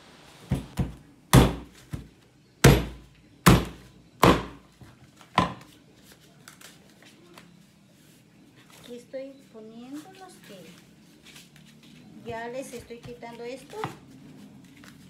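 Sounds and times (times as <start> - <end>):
machete chopping on wooden board: 0.5 - 4.6, 5.3 - 5.6.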